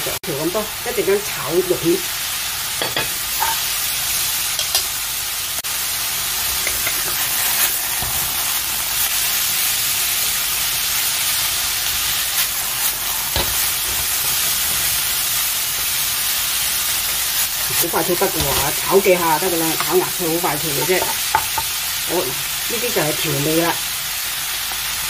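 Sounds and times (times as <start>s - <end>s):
vegetables sizzling in oil: 0.0s - 25.0s.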